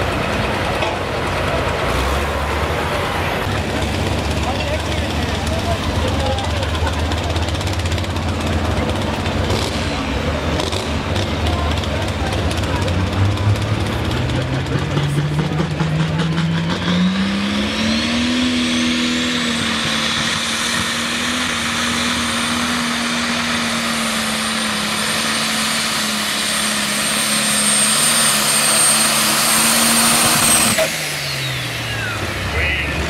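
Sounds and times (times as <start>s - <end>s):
diesel engine at full throttle: 0.0s - 33.0s
high turbo whine: 0.0s - 33.0s.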